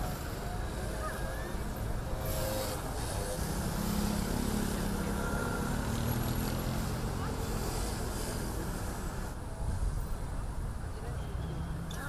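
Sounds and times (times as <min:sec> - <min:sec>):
faint crowd voices: 0:00.0 - 0:12.0
street traffic noise: 0:00.0 - 0:12.0
motorcycle passing: 0:02.1 - 0:08.3.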